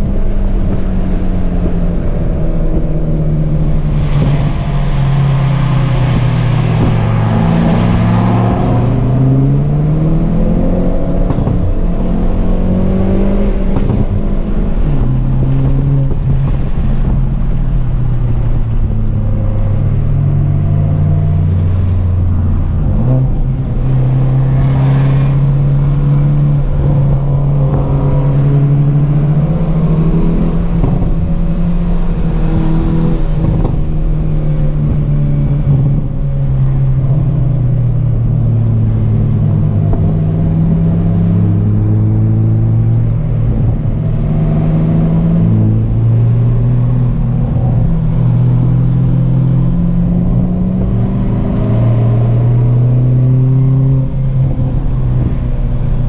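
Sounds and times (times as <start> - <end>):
car engine accelerating: 0.0 - 56.0.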